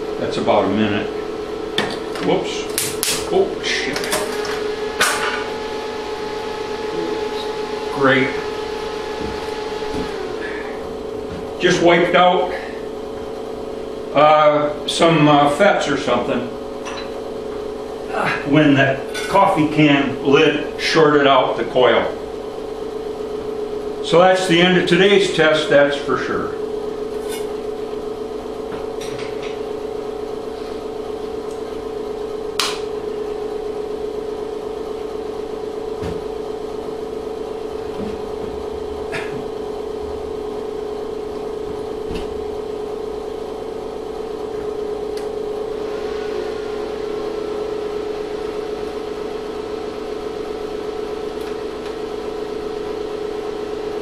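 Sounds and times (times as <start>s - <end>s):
electrical machine hum: 0.0s - 54.0s.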